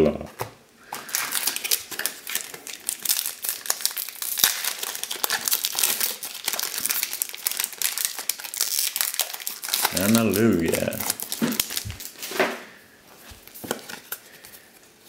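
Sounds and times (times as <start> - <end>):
foil wrapper crinkling and tearing: 0.8 - 12.4.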